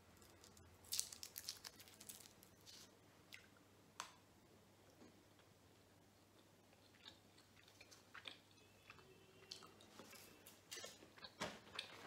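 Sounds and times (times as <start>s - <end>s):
wrapper crinkling: 0.2s - 2.9s.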